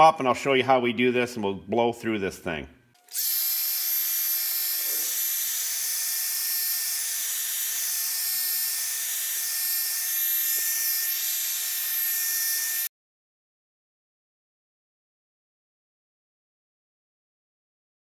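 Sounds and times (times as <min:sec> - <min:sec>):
hair dryer blowing: 0:03.1 - 0:12.9.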